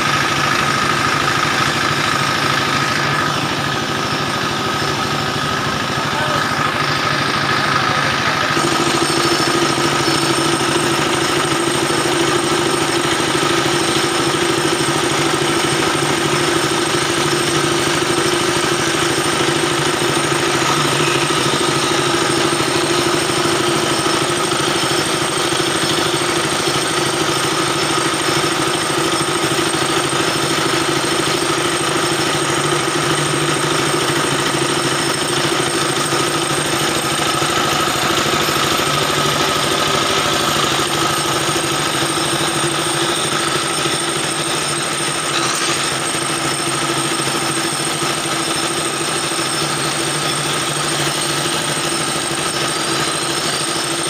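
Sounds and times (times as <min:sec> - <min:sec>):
diesel engine knocking: 0:00.0 - 0:54.0
dowel machine cutter whine: 0:00.0 - 0:54.0.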